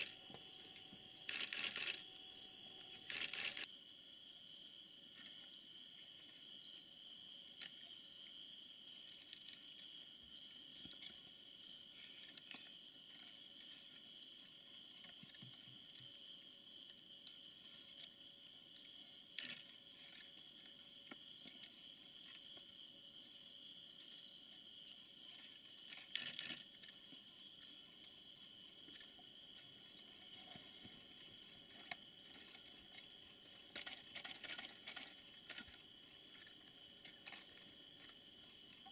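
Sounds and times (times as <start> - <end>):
insects trilling: 0.0 - 38.9
faint clicks or rustles: 30.2 - 38.2.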